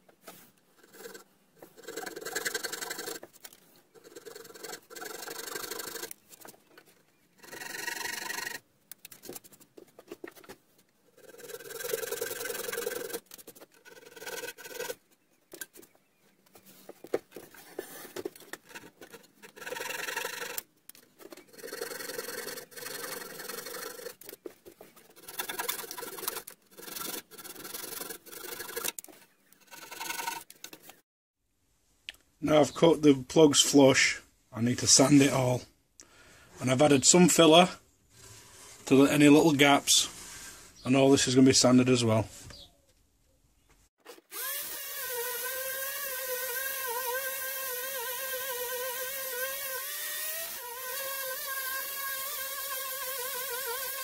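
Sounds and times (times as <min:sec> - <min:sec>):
pull saw sawing wood: 0:00.3 - 0:06.6, 0:07.4 - 0:09.6, 0:11.1 - 0:15.9, 0:16.8 - 0:31.0, 0:44.0 - 0:54.0.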